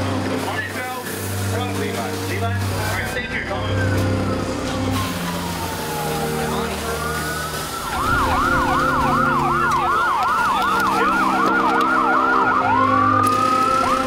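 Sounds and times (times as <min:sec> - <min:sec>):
electronic siren yelp and wail: 0:04.1 - 0:14.0.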